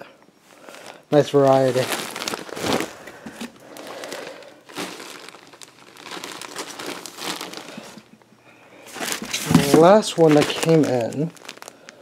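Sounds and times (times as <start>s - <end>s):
plastic packaging crinkling: 0.5s - 12.0s
small crackles and clicks: 10.1s - 12.0s.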